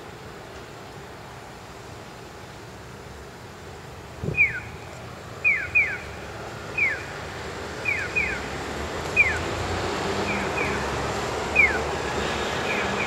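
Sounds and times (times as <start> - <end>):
traffic noise: 0.0 - 13.0
crossing signal chirps: 11.5 - 11.8.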